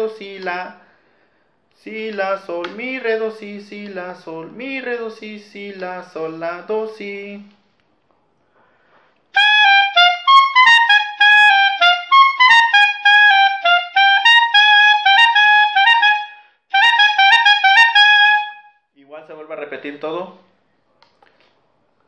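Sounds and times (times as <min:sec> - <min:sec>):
clarinet playing lively melody: 0:09.3 - 0:18.8.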